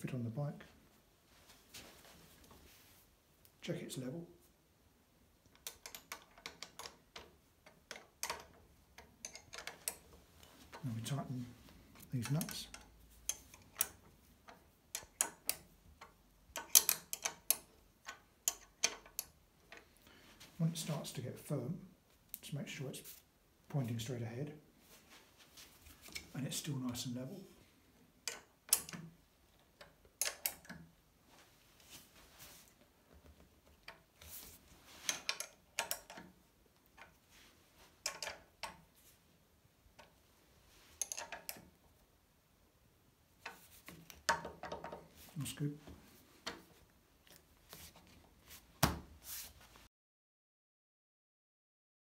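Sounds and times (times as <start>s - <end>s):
spanner clicking on metal: 5.5s - 10.0s, 12.2s - 19.4s, 28.2s - 29.1s, 41.0s - 41.6s.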